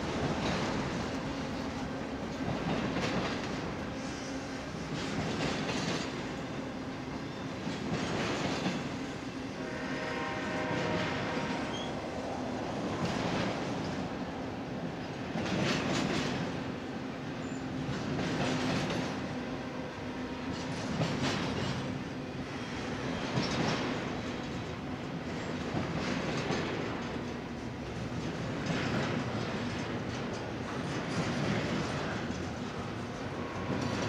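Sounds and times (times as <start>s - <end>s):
freight train rumbling on rails: 0.0s - 34.0s
wheel clatter over rail joints: 25.5s - 34.0s.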